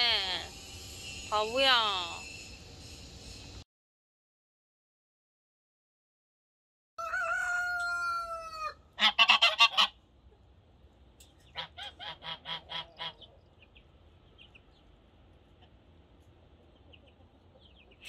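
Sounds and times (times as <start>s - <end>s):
geese honking: 8.5s - 10.0s, 11.5s - 13.4s.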